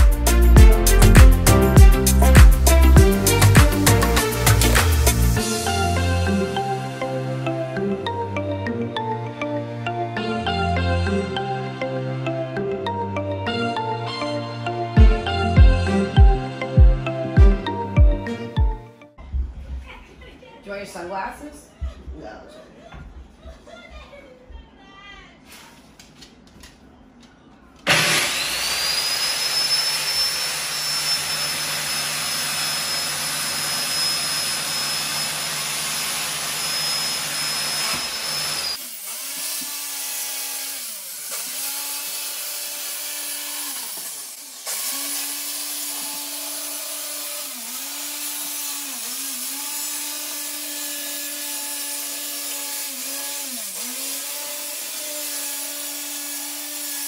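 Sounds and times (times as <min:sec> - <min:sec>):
circular saw cutting plywood: 0:00.9 - 0:05.9, 0:27.9 - 0:57.0.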